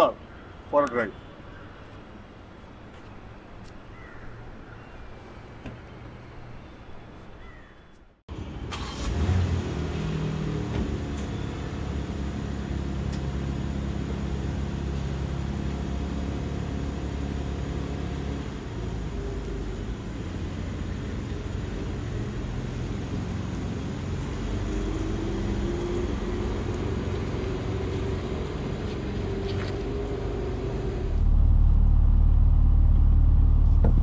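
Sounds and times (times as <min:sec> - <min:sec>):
car engine revving: 0:08.7 - 0:34.0.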